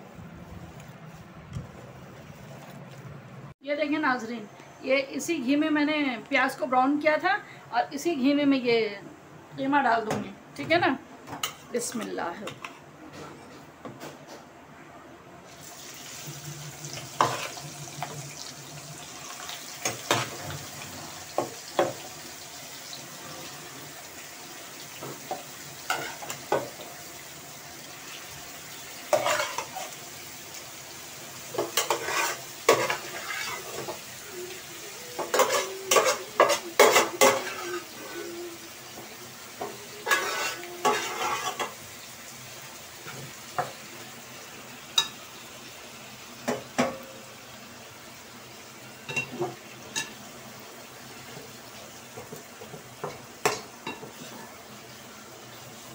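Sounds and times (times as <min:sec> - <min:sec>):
meat sizzling in a pan: 0:15.5 - 0:55.9
metal spoon scraping a pan: 0:17.2 - 0:18.1, 0:25.9 - 0:26.4, 0:29.1 - 0:30.0, 0:31.6 - 0:34.0, 0:35.2 - 0:38.3, 0:39.6 - 0:41.8.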